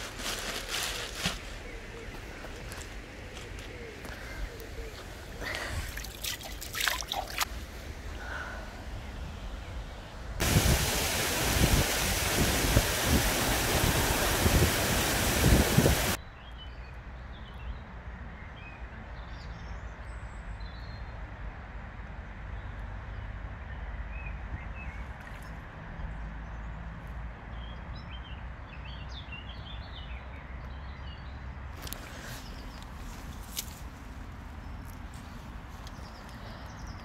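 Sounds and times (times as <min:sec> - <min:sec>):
stream of running water: 0:04.4 - 0:09.2, 0:10.4 - 0:16.2
hand splashing in water: 0:05.6 - 0:07.5.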